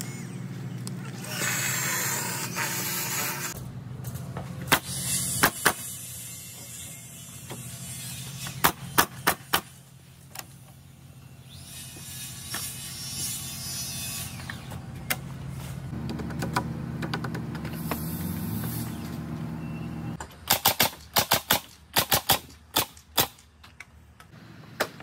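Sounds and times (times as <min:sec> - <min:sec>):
nail gun firing: 0:04.7 - 0:05.8, 0:08.6 - 0:09.8, 0:20.4 - 0:23.4.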